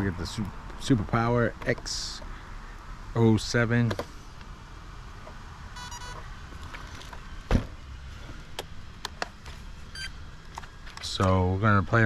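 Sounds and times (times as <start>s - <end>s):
high electronic tone: 5.8s - 6.2s.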